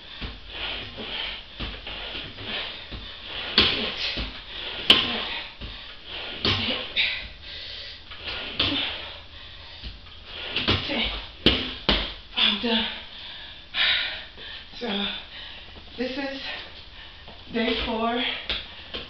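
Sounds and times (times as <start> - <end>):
exercise machine clacking and sliding: 0.0 - 9.2.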